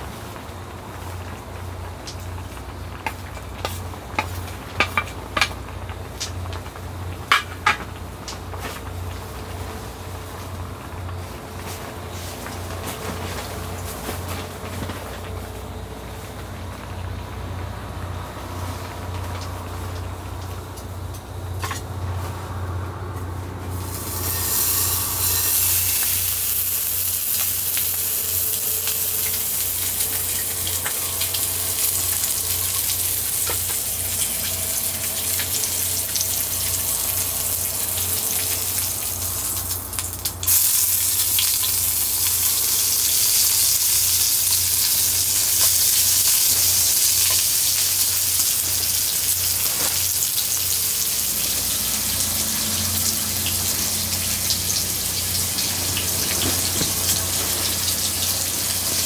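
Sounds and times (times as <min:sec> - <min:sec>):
low steady hum: 0:00.0 - 0:59.0
meat sizzling in a frying pan: 0:23.8 - 0:59.0.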